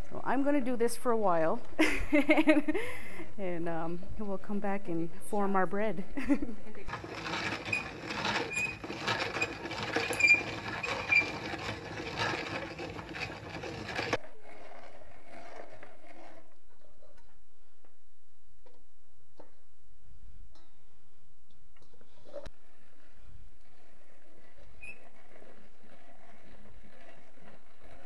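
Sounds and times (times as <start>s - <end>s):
grinder plates scraping: 6.8s - 16.3s, 23.6s - 28.0s.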